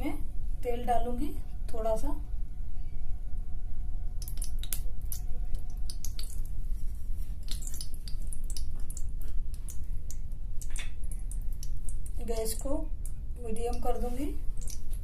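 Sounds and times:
oil crackling and popping: 4.2 - 6.6, 7.4 - 13.2, 14.4 - 15.0.

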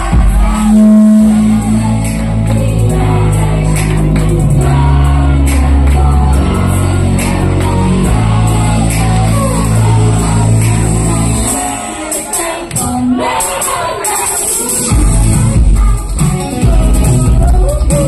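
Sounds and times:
rising synth sweep: 0.0 - 11.5
heavy bass beat: 0.0 - 11.8, 14.9 - 18.0
girls singing: 0.0 - 18.0
pop song over loudspeakers: 0.0 - 18.0.

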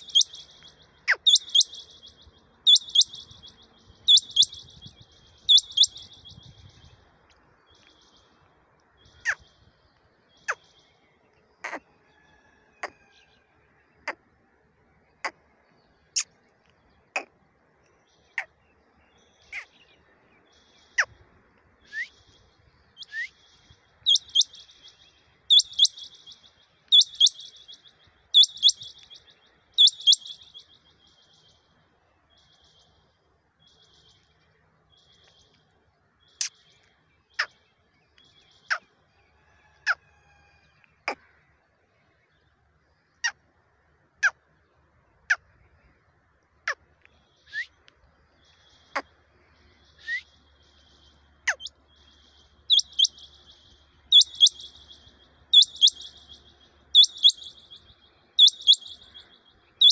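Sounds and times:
quail calling sharp notes: 0.0 - 2.0, 2.7 - 3.3, 4.1 - 4.7, 29.8 - 30.4, 52.7 - 53.3, 54.1 - 54.8, 55.6 - 57.7, 58.4 - 59.1
quail trilled bursts: 1.1 - 1.9, 2.7 - 3.4, 4.1 - 4.8, 5.4 - 6.3, 52.7 - 53.3, 54.1 - 54.8, 55.5 - 56.3, 56.9 - 57.7, 58.4 - 59.1.

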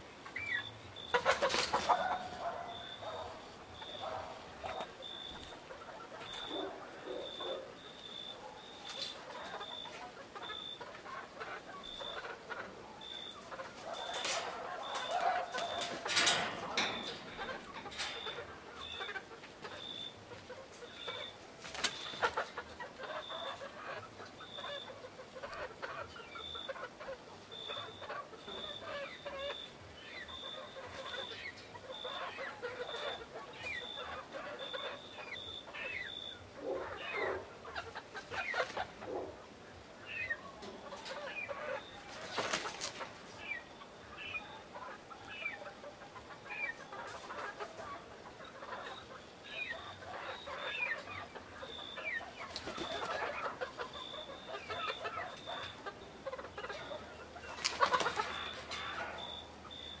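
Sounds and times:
chickens clucking softly: 0.0 - 60.0
wings flapping: 21.6 - 22.5, 42.1 - 43.2, 52.4 - 53.4, 57.5 - 58.8.

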